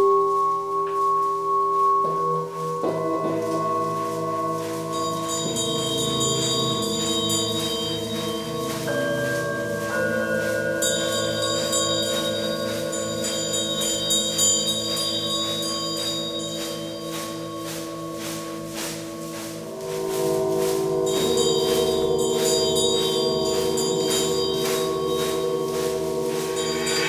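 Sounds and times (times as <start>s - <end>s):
singing bowls ringing: 0.0s - 27.0s
singing bowl strikes: 2.0s - 27.0s.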